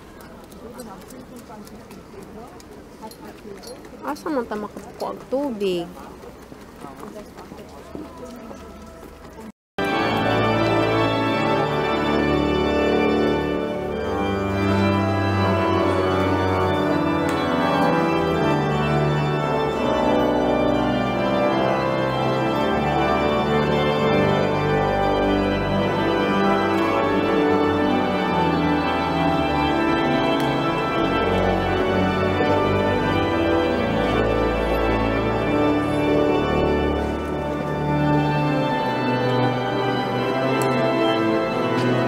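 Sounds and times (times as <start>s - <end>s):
organ playing slow chords: 9.8s - 42.0s.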